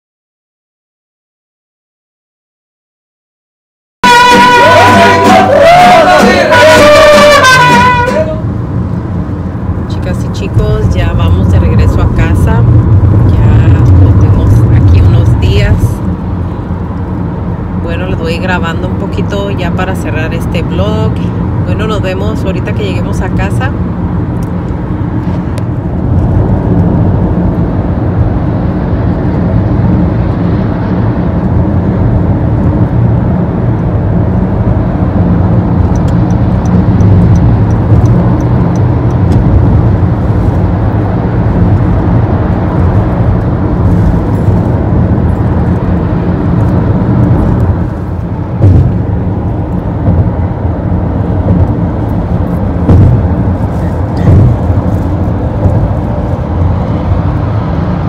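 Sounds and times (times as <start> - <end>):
road and engine drone in car: 4.0 - 58.0
car bump: 48.6 - 49.2, 52.8 - 53.5, 54.2 - 54.9.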